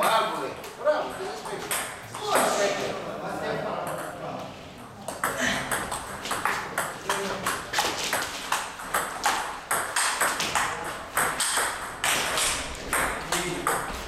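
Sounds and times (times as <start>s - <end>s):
table tennis ball clicking: 5.1s - 13.9s.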